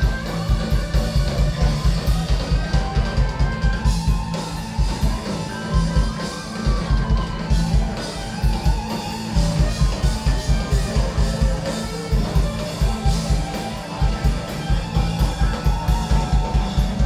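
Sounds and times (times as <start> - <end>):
live rock band playing: 0.0 - 17.0.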